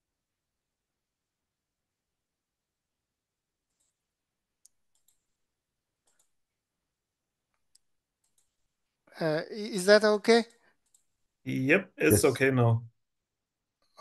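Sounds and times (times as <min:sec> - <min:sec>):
faint clicks: 0:04.6 - 0:05.3, 0:06.0 - 0:06.4, 0:07.5 - 0:08.6, 0:10.5 - 0:11.2.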